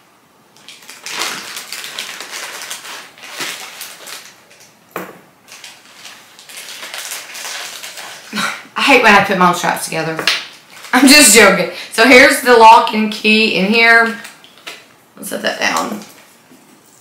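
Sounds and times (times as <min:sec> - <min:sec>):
plastic wrapping crinkling: 0:00.5 - 0:12.8.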